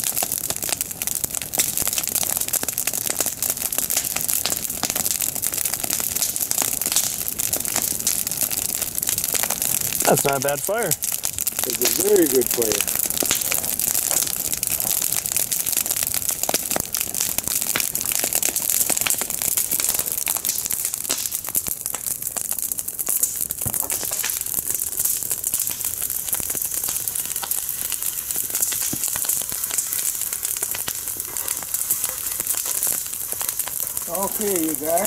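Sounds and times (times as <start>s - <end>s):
campfire crackling and popping: 0.0s - 35.0s.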